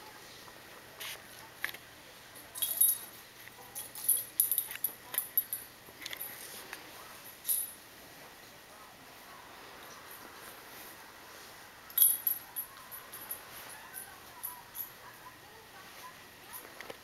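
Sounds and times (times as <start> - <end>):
collar tag jingling: 2.4 - 6.4, 11.9 - 15.0.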